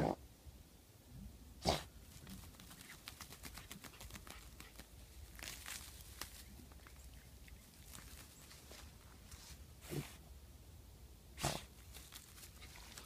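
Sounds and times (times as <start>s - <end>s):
dog digging in dry leaves: 2.0s - 10.2s, 11.4s - 13.0s
small dog snorting: 9.8s - 10.2s, 11.4s - 11.7s.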